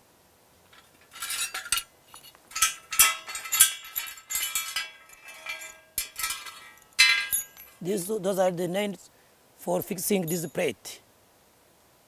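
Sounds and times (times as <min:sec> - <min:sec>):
steel tools clinking on metal trays: 0:00.8 - 0:07.8.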